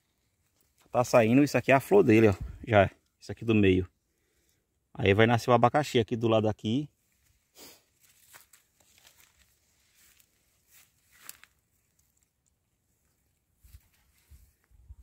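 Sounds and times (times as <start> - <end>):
dry leaves crackling: 8.0 - 12.3.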